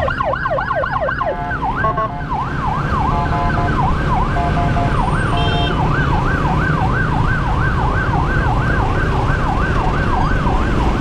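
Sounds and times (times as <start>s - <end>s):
emergency siren yelping: 0.0s - 11.0s.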